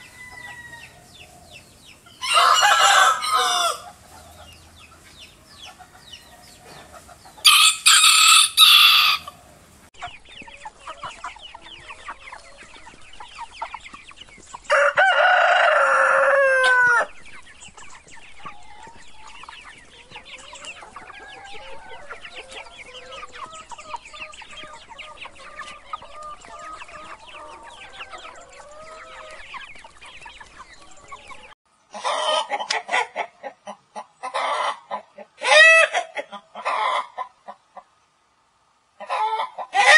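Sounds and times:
rooster crowing: 0.0s - 1.5s, 2.2s - 4.0s, 7.4s - 9.5s, 14.7s - 17.1s
hen clucking: 0.0s - 38.0s, 39.0s - 39.9s
soft chicken calls: 0.0s - 38.1s, 39.0s - 39.9s.

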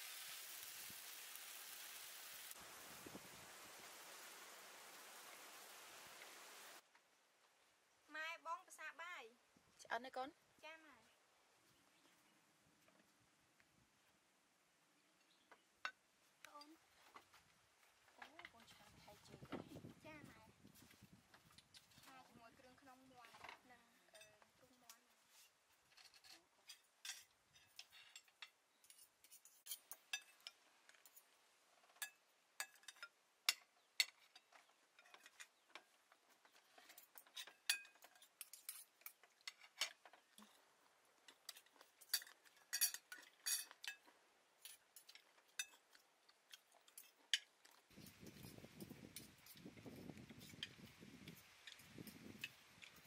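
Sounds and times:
cutlery clinking on plates: 26.0s - 31.2s, 31.9s - 35.5s, 36.8s - 40.6s, 41.4s - 49.6s.

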